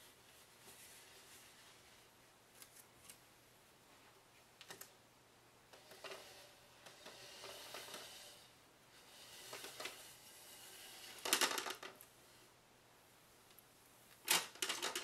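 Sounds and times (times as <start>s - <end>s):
rustling: 0.0s - 4.9s.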